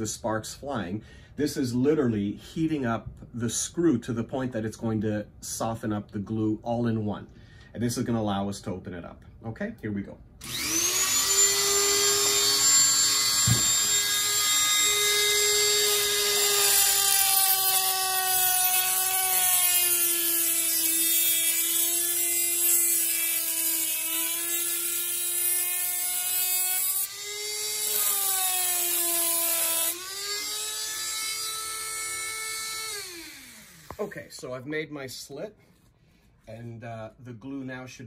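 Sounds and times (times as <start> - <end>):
rotary tool cutting metal: 10.4 - 34.1.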